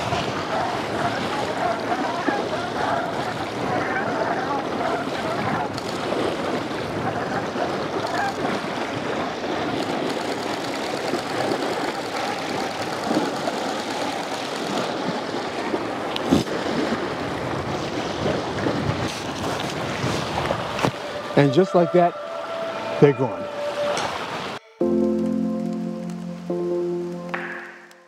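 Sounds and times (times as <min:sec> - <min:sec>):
wind noise on microphone: 0:00.0 - 0:10.2, 0:16.2 - 0:21.4
small waves on sandy shore: 0:00.0 - 0:24.6
sharp knock: 0:27.3 - 0:28.0.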